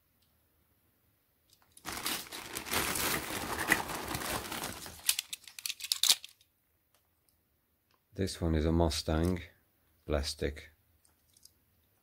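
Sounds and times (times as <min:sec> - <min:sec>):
plastic bag crinkling: 0:01.7 - 0:06.4.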